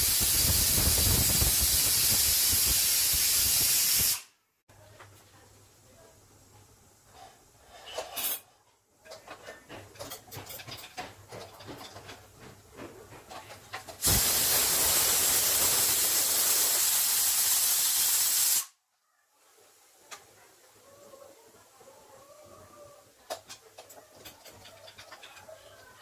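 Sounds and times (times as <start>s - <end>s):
pressure cooker steam hissing: 0.0s - 4.3s, 14.0s - 18.7s
kitchen utensils clinking: 7.7s - 12.4s, 23.3s - 26.0s.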